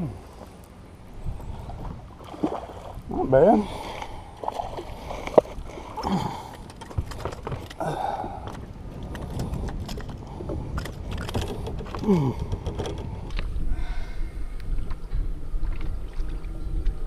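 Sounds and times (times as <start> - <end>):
fish flopping on boat deck: 3.7 - 14.1.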